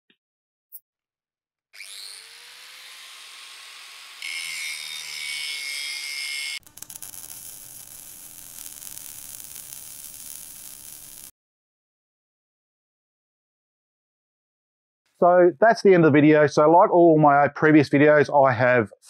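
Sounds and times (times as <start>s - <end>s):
crackling arc buzz: 6.0s - 11.3s
hiss: 8.1s - 11.3s.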